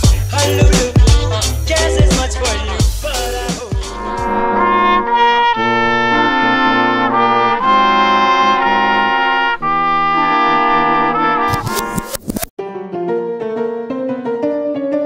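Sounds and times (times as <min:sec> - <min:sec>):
brass ensemble playing chords: 0:03.0 - 0:12.0.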